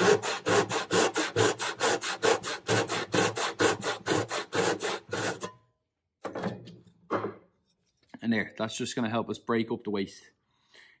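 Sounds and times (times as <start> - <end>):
hand saw rasping through wood: 0.0 - 5.5.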